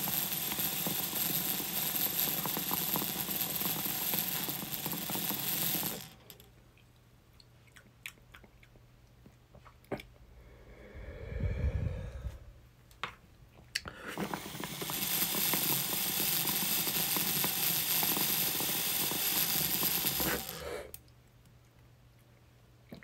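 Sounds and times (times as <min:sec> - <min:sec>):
person blowing out breath: 0:10.4 - 0:12.6, 0:13.8 - 0:14.5, 0:20.2 - 0:21.0.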